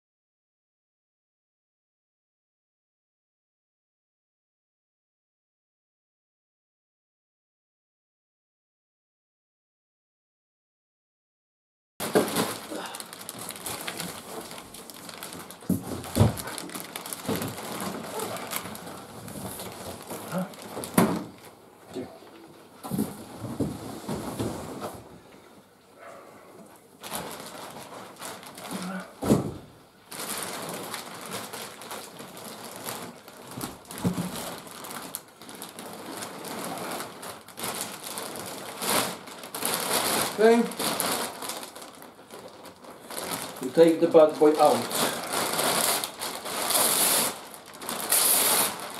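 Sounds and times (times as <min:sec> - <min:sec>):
plastic bag rustling: 0:12.0 - 0:25.3, 0:26.0 - 0:48.9.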